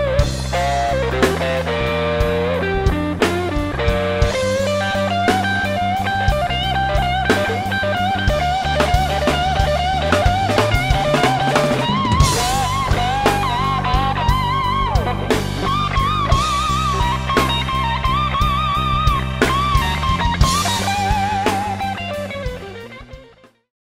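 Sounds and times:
electric guitar lead with vibrato: 0.0 - 23.7
rock instrumental music: 0.0 - 23.7.

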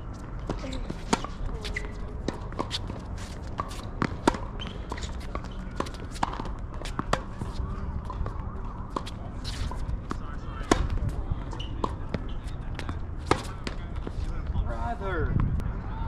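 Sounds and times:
players' footsteps: 0.0 - 15.0
tennis ball struck and bouncing: 3.5 - 11.1.

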